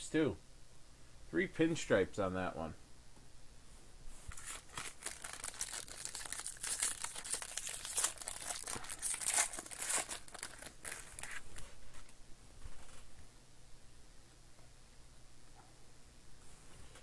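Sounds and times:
foil wrapper tearing and crinkling: 4.3 - 11.5.

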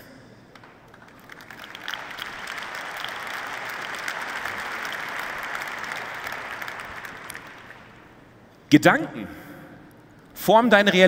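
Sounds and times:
large audience applauding: 0.6 - 8.2.

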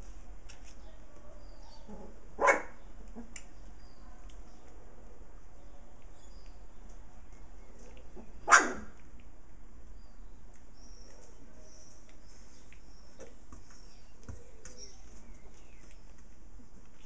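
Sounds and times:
puppy barking: 2.4 - 2.8, 8.4 - 8.9.

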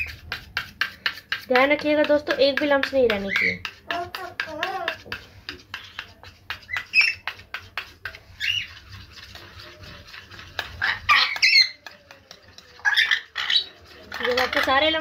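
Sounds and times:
spoon scraping metal bowl: 0.0 - 15.0
birds squawking: 6.7 - 7.2, 8.4 - 8.8, 10.6 - 11.8, 12.8 - 14.6.

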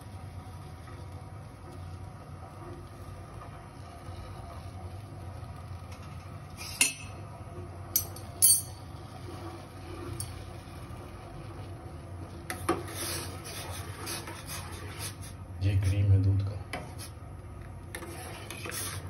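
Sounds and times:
gas burner humming: 0.0 - 19.0
spoon scraping a saucepan: 12.5 - 15.3, 17.9 - 19.0.

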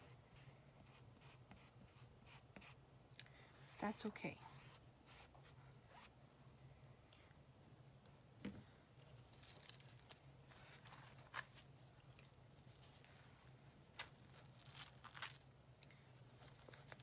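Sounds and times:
low steady hum: 0.0 - 17.0
plastic stencil crackling when peeled: 9.1 - 13.1, 13.9 - 15.5.

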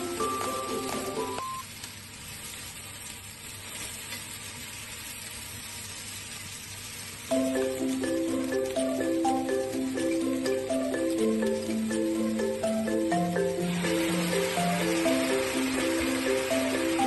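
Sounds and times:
light marimba music: 0.0 - 1.6, 7.3 - 17.0
vegetables sizzling in frying pan: 0.0 - 17.0.

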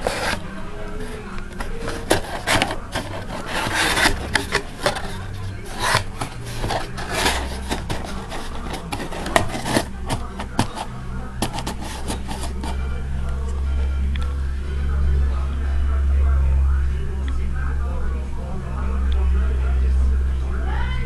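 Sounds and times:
cardboard scraping: 0.0 - 12.9.

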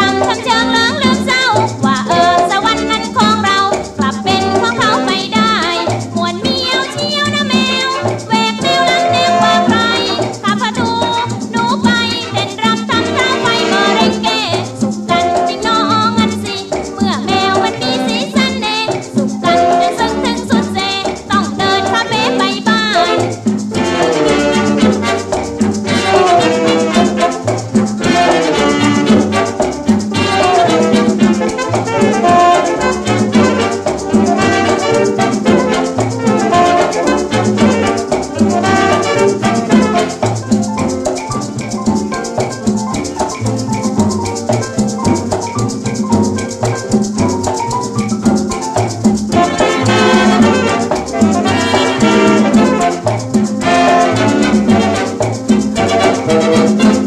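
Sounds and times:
woman singing: 0.0 - 23.4, 30.1 - 33.8, 34.4 - 40.2, 49.3 - 55.2
band accompaniment: 0.0 - 57.0
shaken rattle percussion: 0.0 - 57.0.

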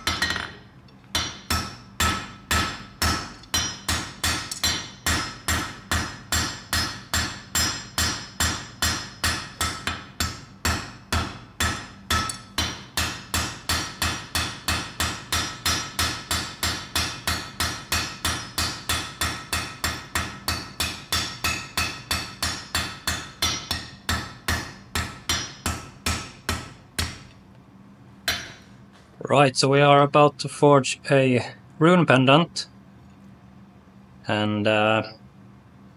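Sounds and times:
hammer striking iron on anvil: 0.0 - 27.3, 28.2 - 28.7.

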